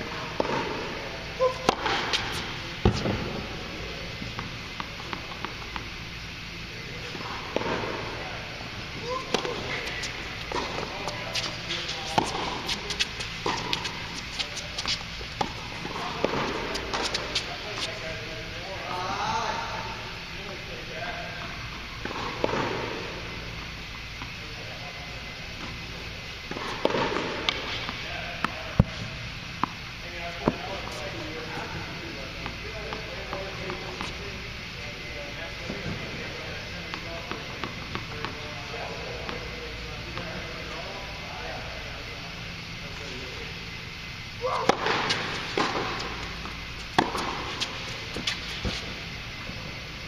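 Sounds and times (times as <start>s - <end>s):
hall hum: 0.0s - 20.8s
steady low hum: 0.0s - 50.0s
tennis ball bouncing on hard court: 0.4s - 0.8s, 1.6s - 3.5s, 9.2s - 17.4s, 26.5s - 28.9s, 36.9s - 38.4s, 44.6s - 49.0s.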